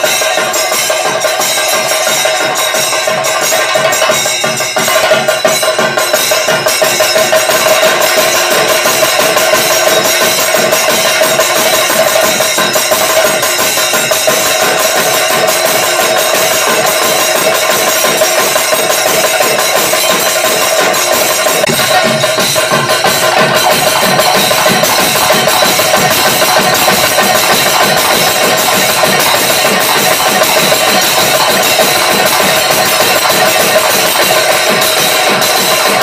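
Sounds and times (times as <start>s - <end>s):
fast drum ensemble: 0.0s - 36.0s
steady ringing tone: 0.0s - 36.0s.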